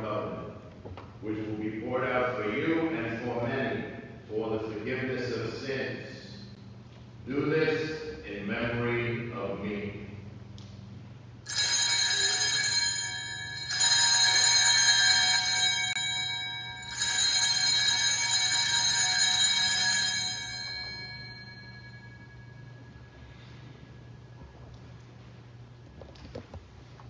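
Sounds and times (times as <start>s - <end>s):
altar bells ringing: 11.5s - 24.4s.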